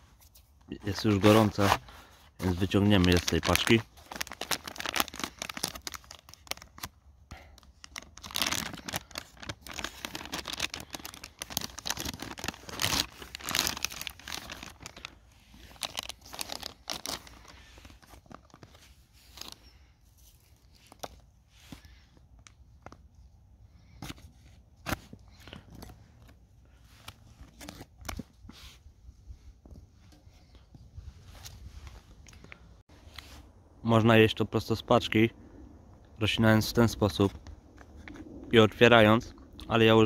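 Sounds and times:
plastic and foil packaging crinkling: 0.8 - 22.9.

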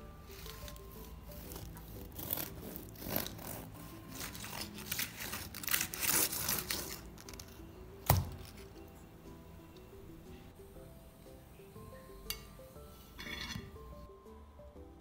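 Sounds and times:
bread tearing and crinkling: 0.3 - 7.6.

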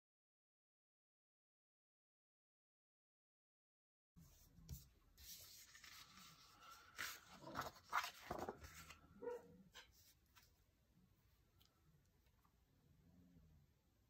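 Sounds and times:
paper pages rustling on desk: 4.3 - 9.1, 9.7 - 10.6.

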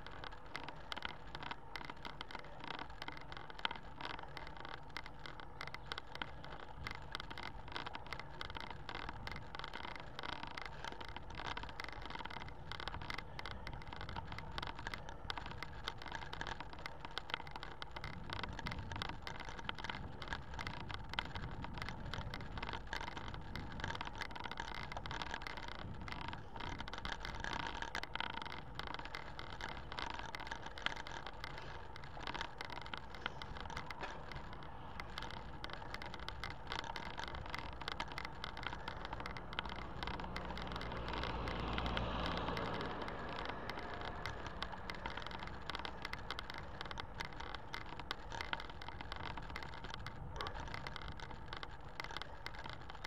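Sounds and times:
bicycle rattles and clicks: 0.0 - 53.0
tyres on rough tarmac: 0.0 - 53.0
car overtaking: 39.3 - 46.5.

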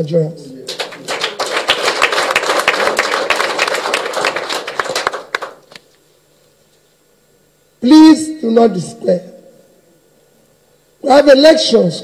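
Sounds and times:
crowd applauding: 0.7 - 5.8.

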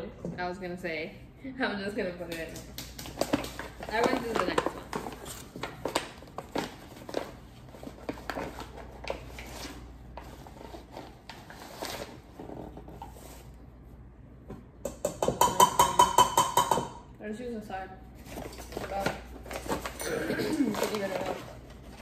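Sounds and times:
metal cup clattering against bowl: 14.9 - 17.0.

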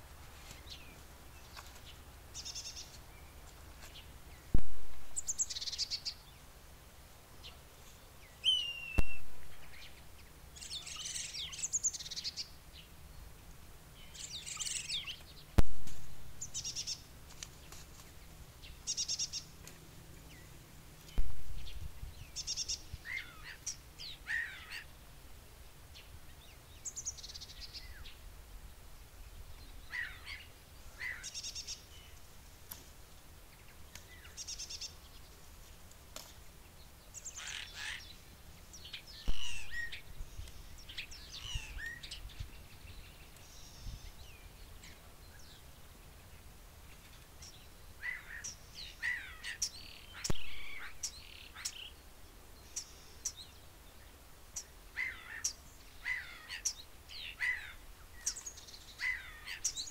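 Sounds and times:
songbirds chirping: 0.0 - 59.9
sharp snaps: 9.0 - 9.6.

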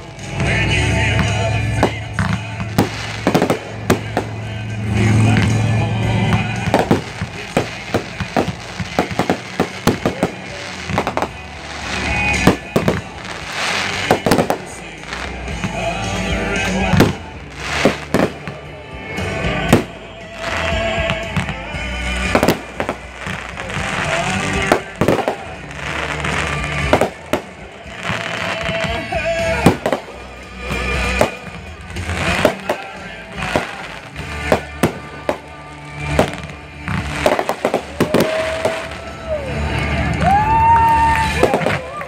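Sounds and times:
fireworks bursting: 0.0 - 42.0
music playing: 0.0 - 42.0.

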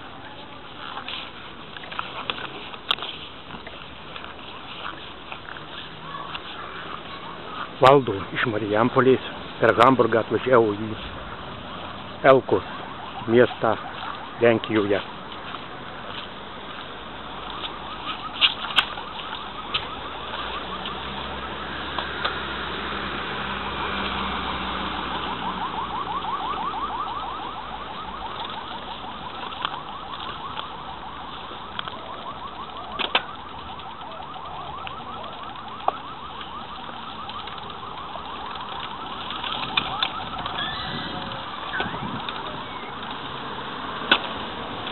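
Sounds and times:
car alarm chirping: 17.2 - 22.4, 24.2 - 43.4.

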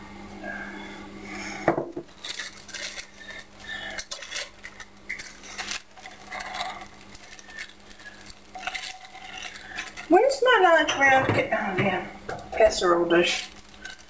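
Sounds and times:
plastic bag crinkling: 2.1 - 11.7, 12.5 - 14.0.

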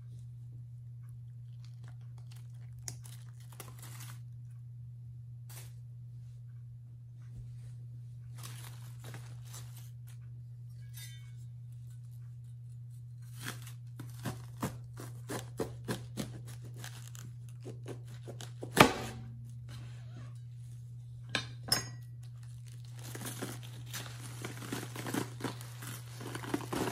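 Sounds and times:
low hum: 0.0 - 15.2, 16.4 - 26.9
cleaver crunching through cabbage: 1.3 - 4.3, 8.4 - 10.2, 11.9 - 19.2, 22.2 - 26.9.

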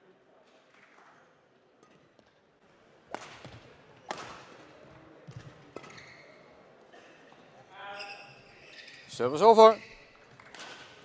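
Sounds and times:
racket striking shuttlecock: 3.1 - 4.4.

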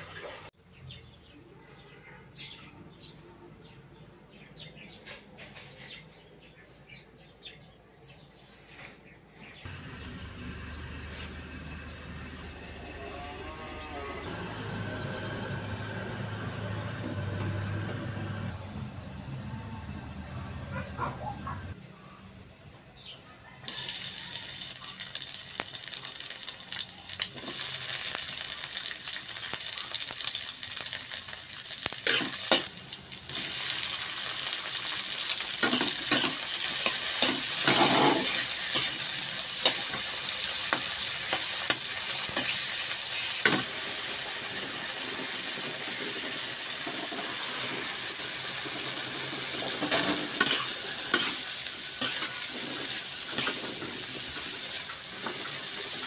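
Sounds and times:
oil sizzling in a wok: 23.6 - 56.0
metal spatula scraping a pan: 35.6 - 40.1, 49.5 - 56.0.

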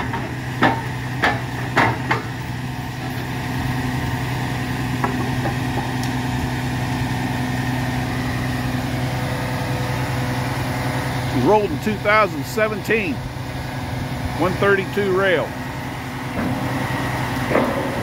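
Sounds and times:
diesel truck engine running: 0.0 - 18.0.

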